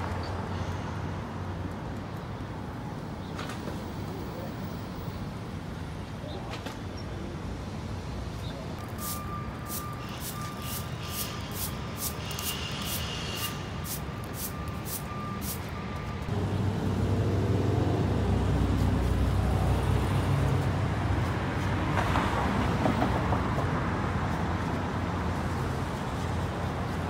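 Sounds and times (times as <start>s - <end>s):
broom sweeping concrete: 8.8s - 15.7s
heavy vehicle engine humming: 8.8s - 21.8s.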